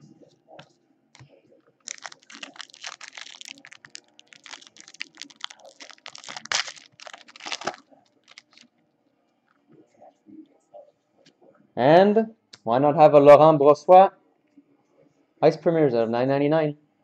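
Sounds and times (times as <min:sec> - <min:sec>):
foil wrapper crinkling: 0:01.8 - 0:08.7.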